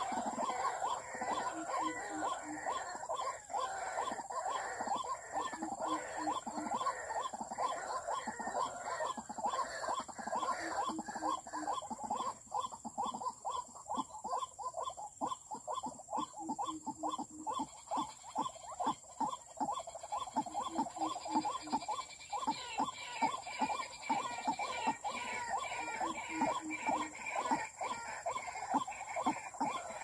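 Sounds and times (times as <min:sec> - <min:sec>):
bird croaking calls: 0:00.0 - 0:30.0.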